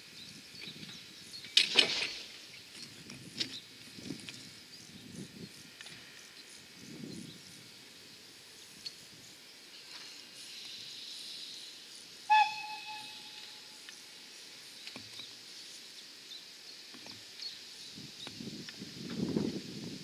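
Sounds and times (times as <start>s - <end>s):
steam hissing: 4.6s - 14.8s
steam whistle blast: 12.3s - 13.8s.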